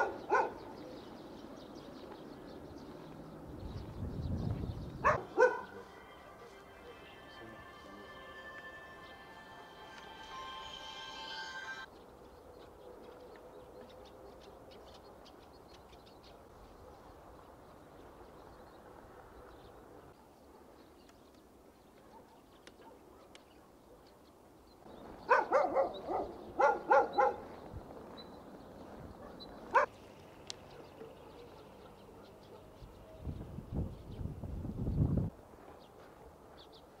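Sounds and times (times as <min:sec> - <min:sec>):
dog barking: 0:00.0 - 0:00.9, 0:05.0 - 0:06.6, 0:22.0 - 0:24.1, 0:25.3 - 0:27.6, 0:29.2 - 0:29.9, 0:30.7 - 0:32.8, 0:36.0 - 0:36.5.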